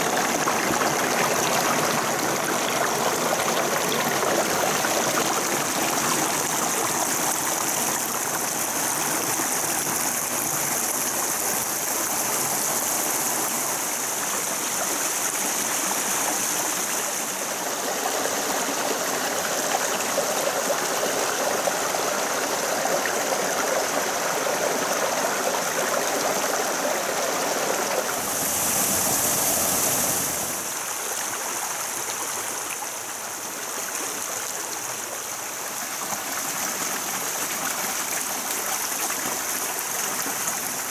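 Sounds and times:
stream water rippling over stones: 0:00.0 - 0:40.9.

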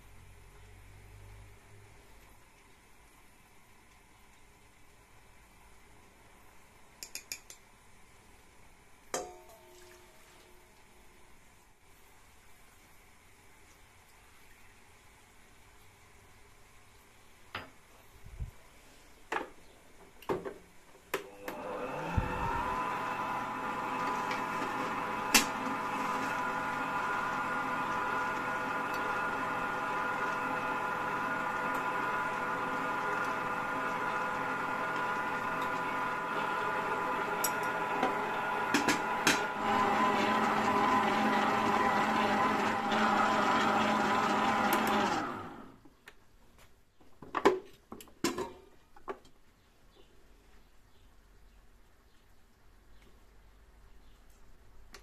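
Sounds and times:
stand mixer motor whining: 0:21.2 - 0:45.7.

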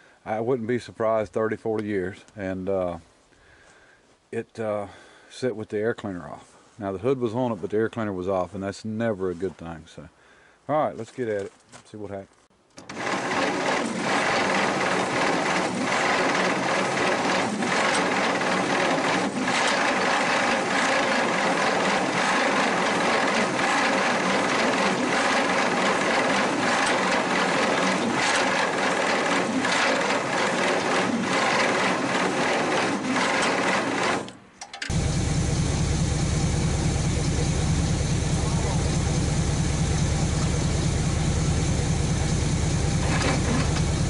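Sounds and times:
engine running with low pulse: 0:12.8 - 0:44.0
starter motor cranking engine: 0:12.8 - 0:44.0.

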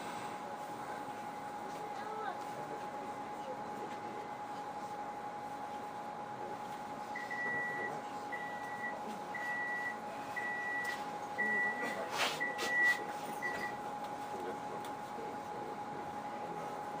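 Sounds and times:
high warning beeps: 0:07.2 - 0:13.8.

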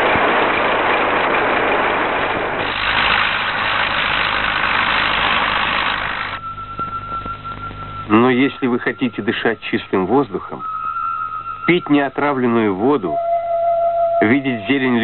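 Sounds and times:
harvesting machinery engines: 0:00.0 - 0:10.6
steady high tone: 0:06.3 - 0:15.0.

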